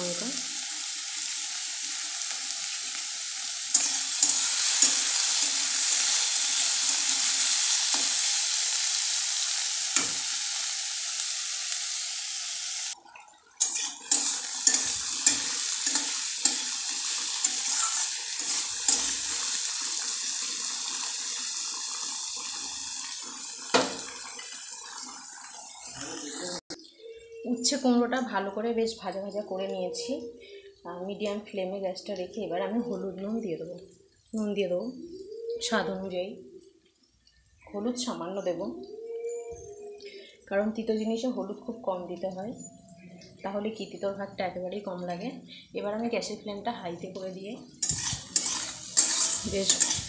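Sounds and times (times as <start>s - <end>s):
vegetables sizzling in oil: 0.0s - 13.0s, 13.6s - 26.8s, 47.0s - 50.0s
spatula scraping and knocking pan: 17.4s - 19.3s, 47.8s - 50.0s.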